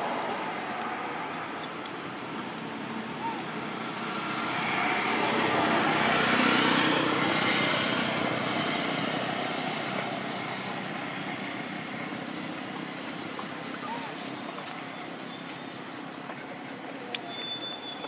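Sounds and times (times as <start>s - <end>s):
vehicle passing: 2.3s - 14.9s.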